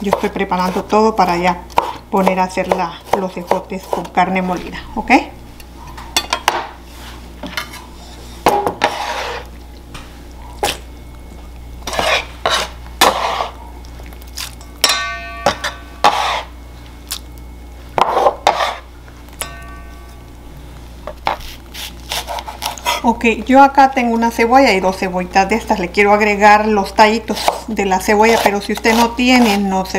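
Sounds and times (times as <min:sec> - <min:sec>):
utensils scraping and knocking: 0:11.9 - 0:13.5
metal bowl ringing: 0:14.6 - 0:16.1, 0:19.3 - 0:20.7
clinks: 0:19.4 - 0:20.2.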